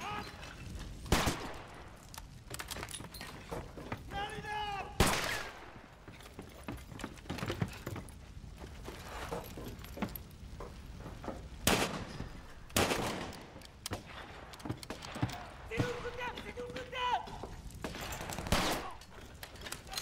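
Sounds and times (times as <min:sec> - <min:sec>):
gunfire clatter: 0:01.0 - 0:03.4, 0:05.0 - 0:06.0, 0:11.6 - 0:20.0
loud gunshots with echo: 0:05.0 - 0:05.8, 0:11.6 - 0:12.2, 0:17.8 - 0:19.0.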